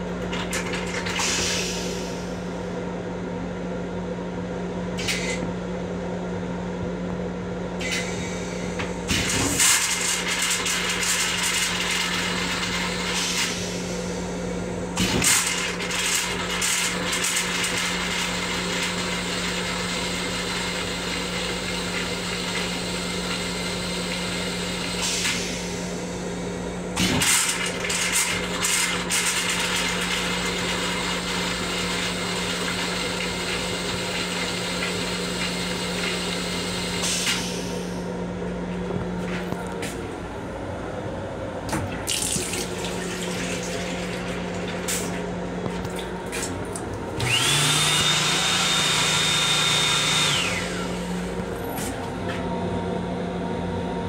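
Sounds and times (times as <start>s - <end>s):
railcar hum and noise: 37.0s - 41.8s, 51.1s - 54.0s.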